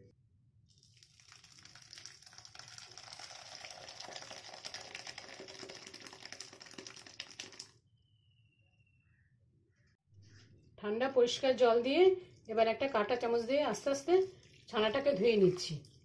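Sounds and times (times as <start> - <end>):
liquid pouring into strainer: 0.7 - 7.7.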